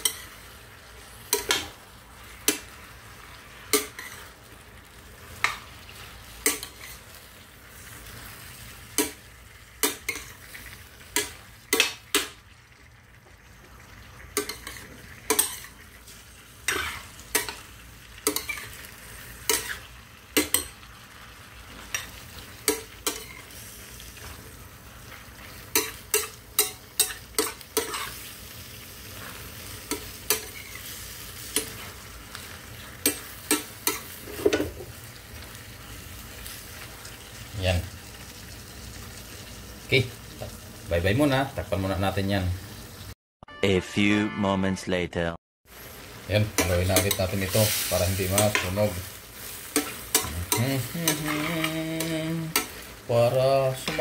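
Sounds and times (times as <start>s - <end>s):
metal spoon scraping pan: 0.0s - 0.4s, 3.7s - 4.4s, 6.4s - 7.1s, 14.3s - 15.8s, 16.6s - 17.6s, 18.2s - 20.8s, 21.8s - 23.6s, 25.4s - 28.3s, 46.5s - 53.0s
food sizzling: 0.0s - 43.2s, 45.6s - 54.0s.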